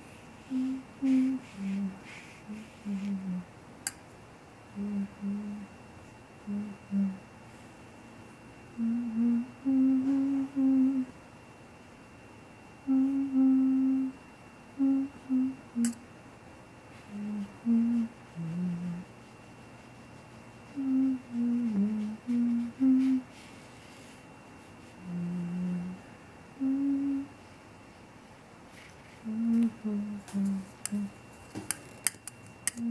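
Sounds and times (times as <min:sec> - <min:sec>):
person humming: 0:00.4 - 0:03.5, 0:04.7 - 0:05.8, 0:06.4 - 0:07.2, 0:08.8 - 0:11.1, 0:12.8 - 0:14.2, 0:14.8 - 0:16.0, 0:17.0 - 0:19.1, 0:20.6 - 0:23.3, 0:24.9 - 0:27.4, 0:29.2 - 0:31.2, 0:32.7 - 0:32.9.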